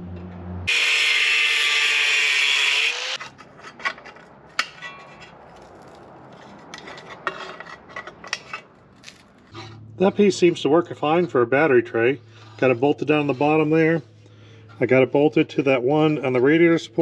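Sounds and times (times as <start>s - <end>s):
angle grinder cutting steel: 0.7s - 3.2s.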